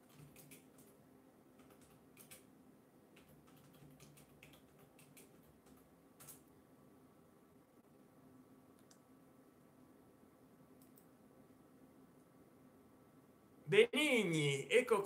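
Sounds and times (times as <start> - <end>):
typing on keyboard: 0.0 - 1.0, 1.6 - 2.5, 3.2 - 6.5.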